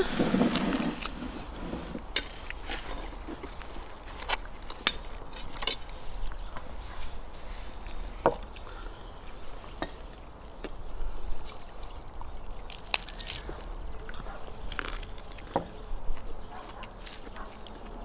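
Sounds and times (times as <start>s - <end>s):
meat being pulled apart: 11.4s - 13.8s.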